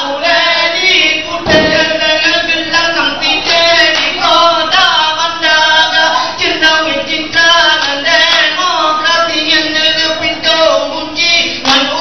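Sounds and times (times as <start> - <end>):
group singing in unison: 0.0 - 12.0
sharp hits: 1.5 - 2.4.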